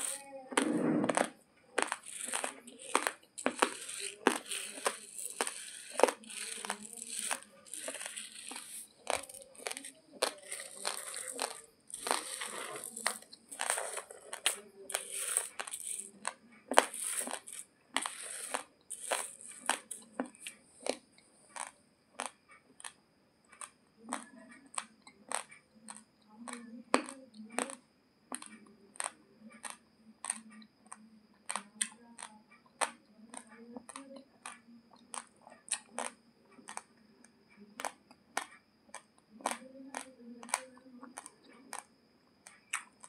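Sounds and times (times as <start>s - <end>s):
raw rice crunching between teeth: 0.0s - 30.4s, 31.4s - 36.9s, 37.8s - 43.0s.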